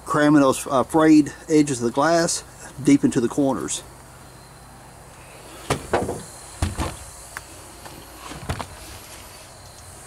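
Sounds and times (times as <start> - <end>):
faint insect chirring: 3.6 - 10.0.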